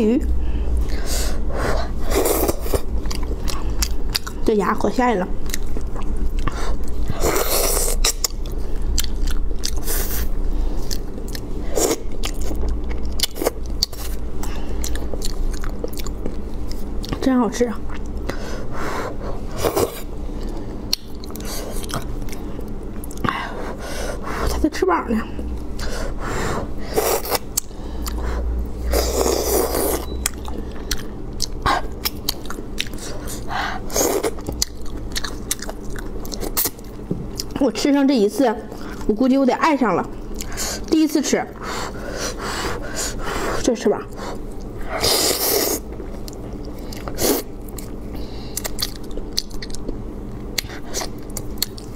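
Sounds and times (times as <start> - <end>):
steady low hum: 0.0 - 51.9
person chewing with wet clicks: 2.1 - 18.4, 19.7 - 23.4, 27.0 - 37.7, 40.0 - 41.0, 44.1 - 51.9.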